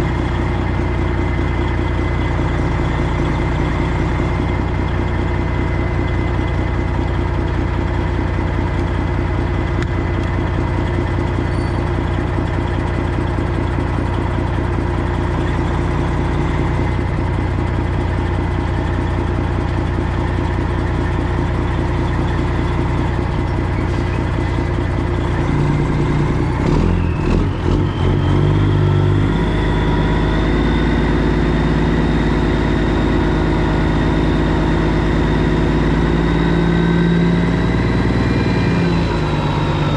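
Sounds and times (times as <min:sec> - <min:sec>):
truck diesel engine running: 0:00.0 - 0:39.9.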